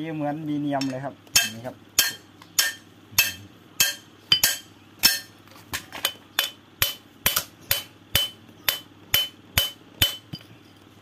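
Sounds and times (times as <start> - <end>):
metal tool striking steel: 1.4 - 5.3, 6.4 - 10.4.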